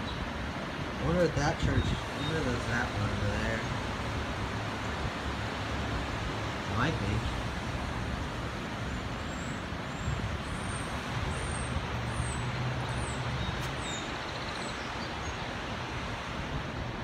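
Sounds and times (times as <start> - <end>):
road traffic rushing: 0.0 - 17.0.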